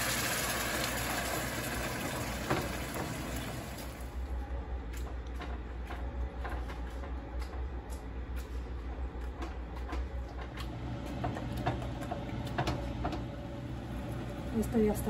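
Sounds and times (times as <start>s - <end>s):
steady low hum: 3.9s - 15.0s.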